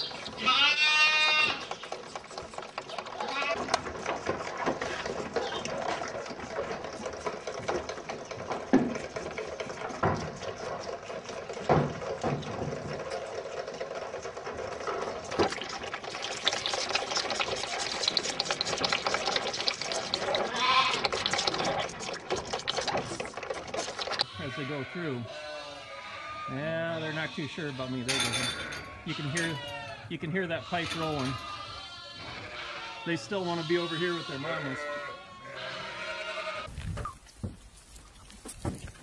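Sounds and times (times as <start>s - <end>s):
lambs slurping and sucking: 0.0s - 39.0s
lamb bleating: 0.4s - 1.8s, 3.2s - 3.8s, 20.4s - 21.2s, 24.2s - 36.7s.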